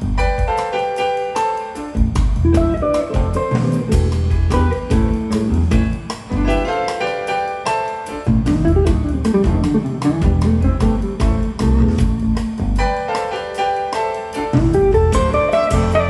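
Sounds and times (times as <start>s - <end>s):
jazz guitar lines: 0.0s - 16.0s
bass guitar notes: 2.0s - 6.8s, 8.3s - 13.0s, 14.6s - 16.0s
drum beat: 2.0s - 6.9s, 8.3s - 12.9s, 14.5s - 16.0s.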